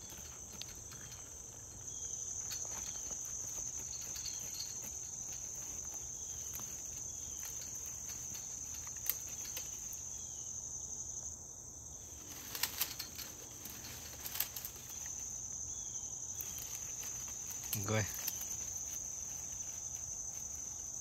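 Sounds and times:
light clicks and rustling: 0.0 - 10.2, 12.0 - 15.5, 16.3 - 21.0
insect chorus: 0.0 - 21.0.

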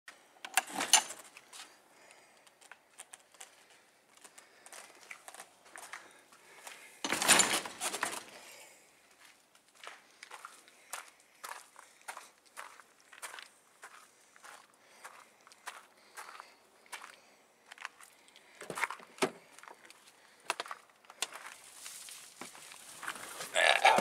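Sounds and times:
rustling: 21.5 - 24.0.

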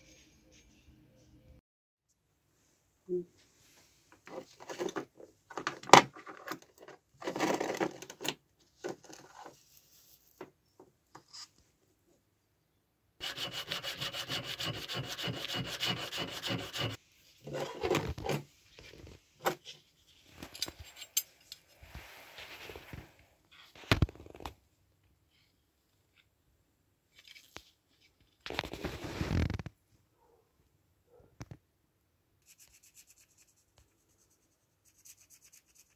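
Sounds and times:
hand file scraping metal: 13.2 - 17.8.

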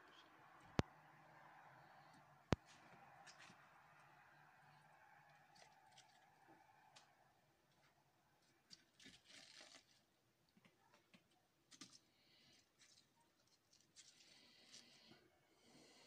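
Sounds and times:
faint rustling of leaves: 11.7 - 16.0.

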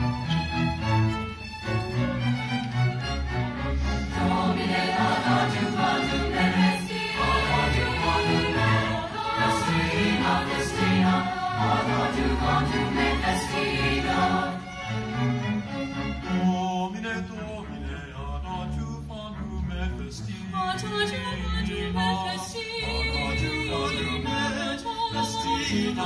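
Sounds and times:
string orchestra: 0.0 - 26.0
choir singing: 3.5 - 18.9, 20.8 - 26.0
solo voices singing with vibrato: 4.0 - 15.4, 16.1 - 26.0.

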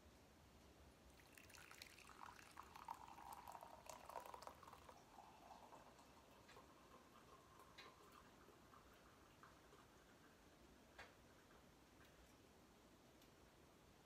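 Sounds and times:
tea trickling into a mug: 1.1 - 11.5.

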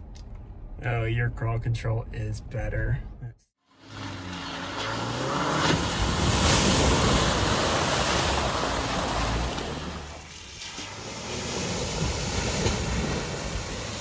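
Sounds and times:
tyres and wind rushing: 3.8 - 14.0.

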